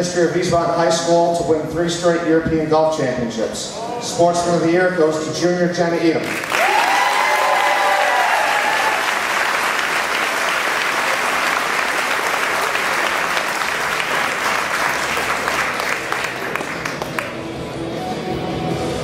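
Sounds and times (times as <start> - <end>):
audience applauding: 6.2 - 17.5.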